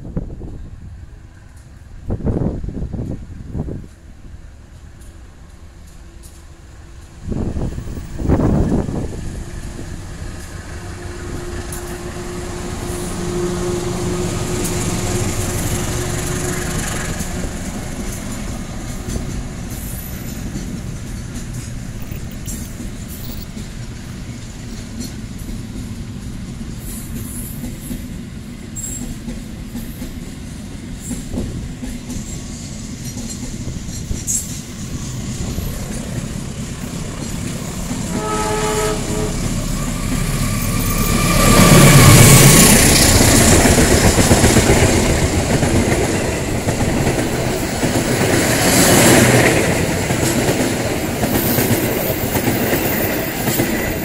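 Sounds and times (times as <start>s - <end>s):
freight train rumbling past: 0.0s - 54.0s
locomotive horn blast: 10.6s - 17.4s, 38.0s - 42.7s
coaches clattering over rail joints: 14.1s - 28.1s, 31.0s - 38.2s.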